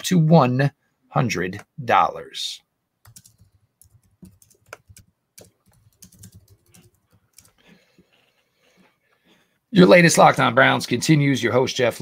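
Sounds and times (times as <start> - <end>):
faint keyboard typing: 3.0 - 8.9.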